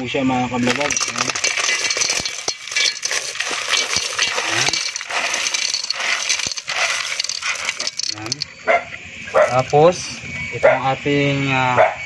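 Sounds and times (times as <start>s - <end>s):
snail shells clattering into metal pot: 0.5s - 8.6s, 9.4s - 10.0s.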